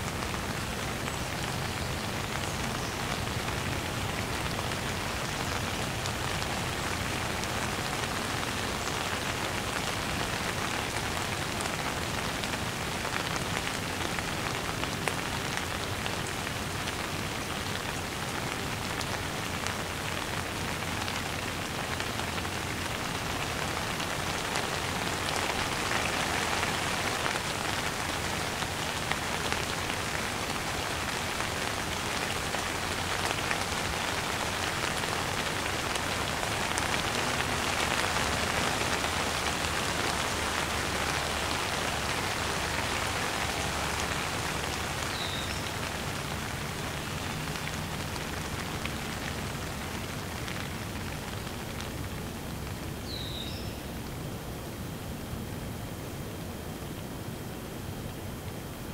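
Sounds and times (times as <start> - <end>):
heavy rain falling: 0.0 - 53.2.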